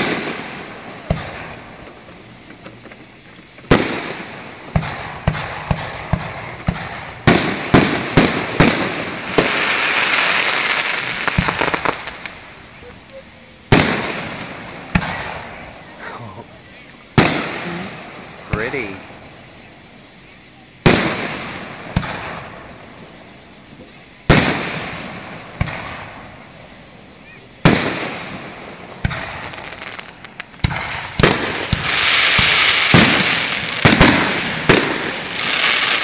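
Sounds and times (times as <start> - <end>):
firework booms: 0.0 - 2.7, 3.5 - 12.6, 13.7 - 15.9, 17.2 - 19.4, 20.8 - 23.2, 24.2 - 26.7, 27.6 - 36.0
crackling of bursting shells: 3.6 - 12.8.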